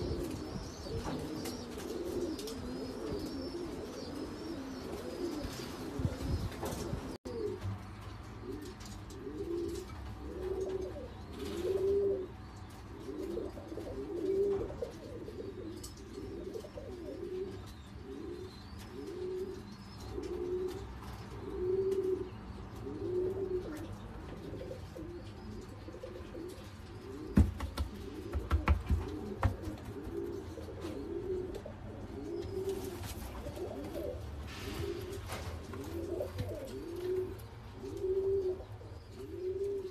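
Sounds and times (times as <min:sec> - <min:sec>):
pigeons cooing: 0:00.0 - 0:39.9
sharp knocks: 0:27.4 - 0:29.7.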